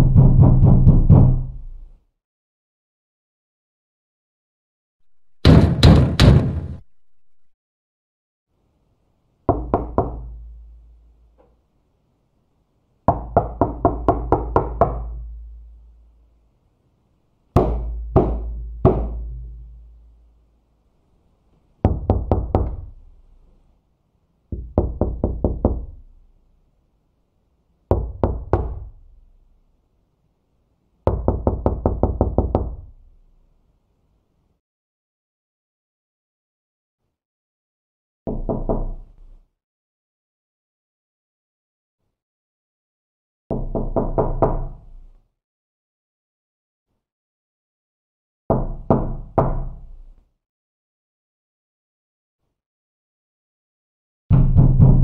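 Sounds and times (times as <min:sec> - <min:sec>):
knuckles knocking on door: 0:00.0 - 0:01.6, 0:09.5 - 0:10.3, 0:17.6 - 0:19.2, 0:24.5 - 0:26.0, 0:31.1 - 0:32.8, 0:54.3 - 0:55.0.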